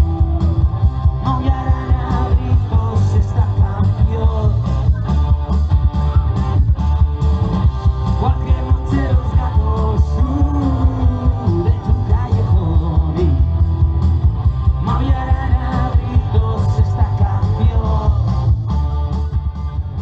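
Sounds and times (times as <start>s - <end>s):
person singing: 0.0s - 5.3s, 8.1s - 13.5s, 14.8s - 18.3s
bass and drum beat: 0.0s - 20.0s
electric guitars: 0.0s - 20.0s.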